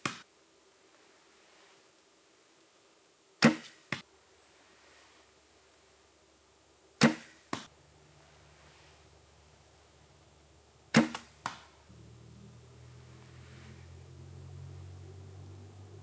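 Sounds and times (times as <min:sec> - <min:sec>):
arrow striking stump: 0:00.0 - 0:00.2, 0:03.4 - 0:04.0, 0:07.0 - 0:07.7, 0:10.9 - 0:11.7
bowstring snap: 0:10.9 - 0:11.7.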